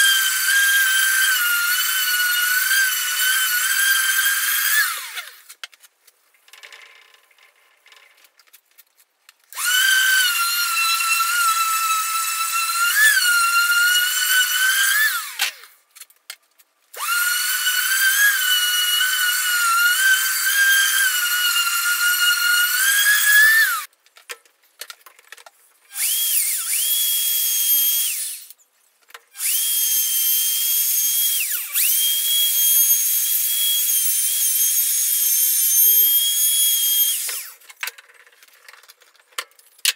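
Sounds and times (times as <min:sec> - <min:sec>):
router running: 0:00.0 - 0:05.4, 0:09.5 - 0:15.7, 0:17.0 - 0:23.9, 0:26.0 - 0:28.5, 0:29.4 - 0:37.6
orbital sander sanding wood: 0:17.0 - 0:23.9.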